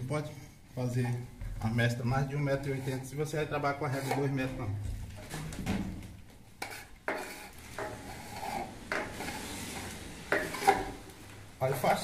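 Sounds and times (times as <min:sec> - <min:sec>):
trowel scraping wet plaster: 0:02.4 - 0:04.6, 0:06.6 - 0:11.0.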